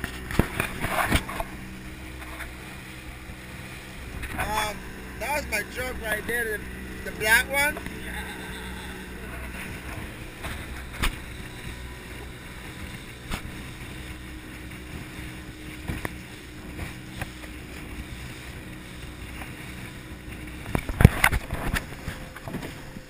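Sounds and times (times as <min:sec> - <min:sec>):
wind buffeting microphone: 0:00.0 - 0:08.1
boat motor running: 0:00.0 - 0:23.0
water rushing past hull: 0:00.0 - 0:23.0.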